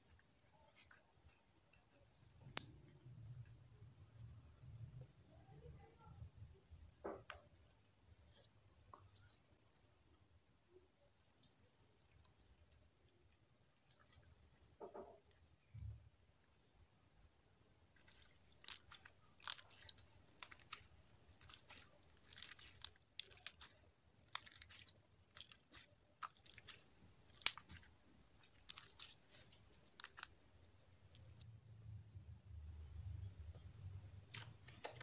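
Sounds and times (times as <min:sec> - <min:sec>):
slime crackling and popping: 0:00.1 - 0:03.6, 0:17.9 - 0:31.4, 0:34.2 - 0:35.0.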